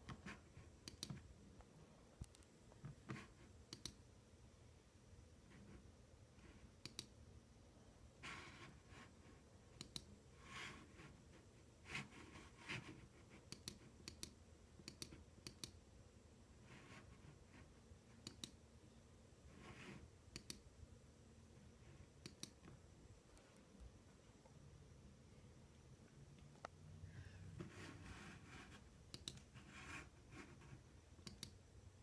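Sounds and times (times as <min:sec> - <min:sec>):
computer mouse clicks: 0:00.1 - 0:01.3, 0:02.2 - 0:04.0, 0:06.8 - 0:07.2, 0:09.8 - 0:10.1, 0:13.4 - 0:15.8, 0:18.2 - 0:18.6, 0:20.3 - 0:20.7, 0:22.2 - 0:22.8, 0:29.1 - 0:29.6, 0:31.2 - 0:31.6.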